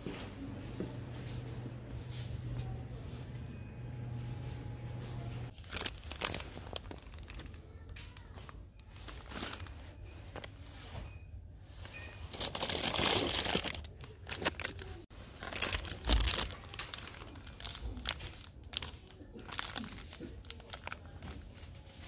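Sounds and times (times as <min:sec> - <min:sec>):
plastic wrapping crinkling: 0:05.5 - 0:10.5, 0:12.2 - 0:22.0.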